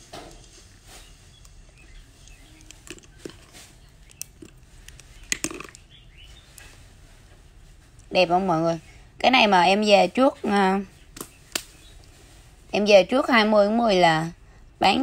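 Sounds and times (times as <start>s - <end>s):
clicks of items being handled: 2.2s - 5.8s.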